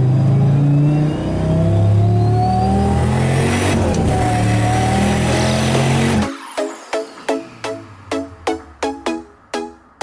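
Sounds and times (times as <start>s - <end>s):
engine accelerating from inside cab: 0.0s - 6.3s.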